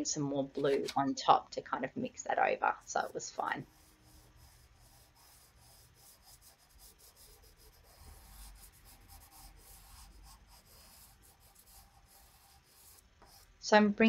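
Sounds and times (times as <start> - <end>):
chalk pastel rubbing on paper: 2.7 - 13.6.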